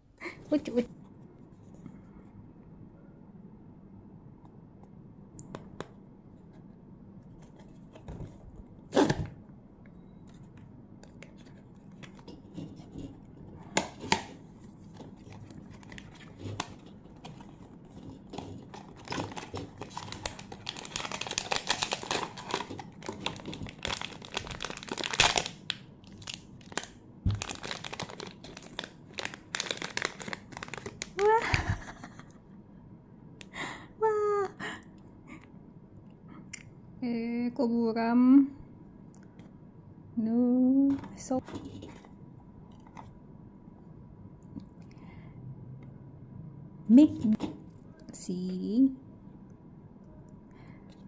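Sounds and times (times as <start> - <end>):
cardboard packaging handled: 11.1 - 25.5, 26.2 - 31.3
plastic wrapper crinkling and tearing: 13.9 - 31.5.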